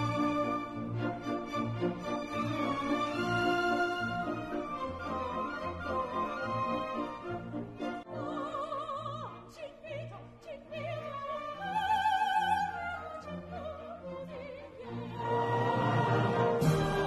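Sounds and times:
orchestral accompaniment: 0:00.0 - 0:08.8, 0:12.7 - 0:17.0
operatic singing: 0:00.0 - 0:17.0.

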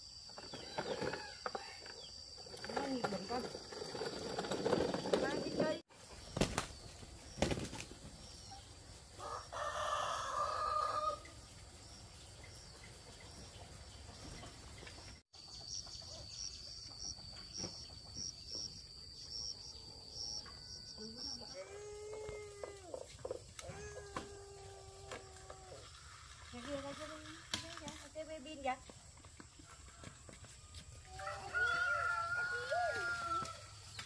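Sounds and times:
rooster crowing: 0:09.2 - 0:11.4, 0:30.0 - 0:33.7.

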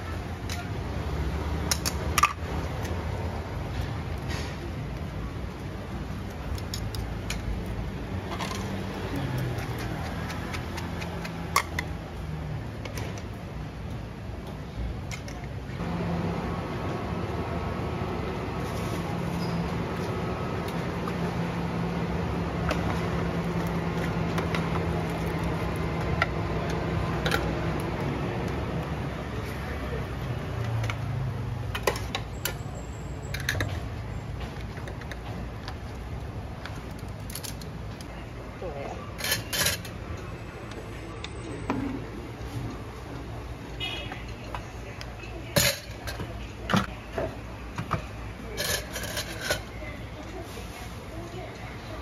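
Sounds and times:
metal utensils clinking on pots: 0:39.2 - 0:40.0, 0:45.5 - 0:46.8, 0:48.5 - 0:49.8.

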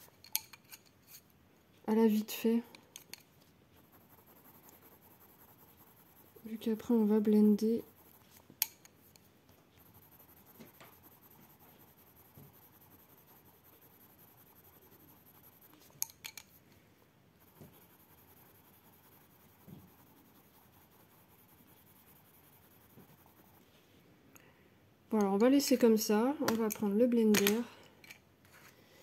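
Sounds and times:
pencil scratching on paper: 0:03.7 - 0:16.1, 0:17.4 - 0:23.8.

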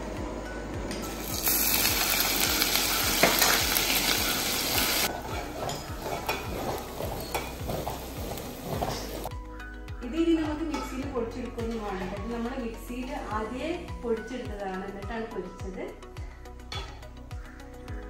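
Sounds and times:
ginger sizzling in hot oil: 0:01.1 - 0:09.3
spoon stirring and scraping pot: 0:05.1 - 0:09.3.

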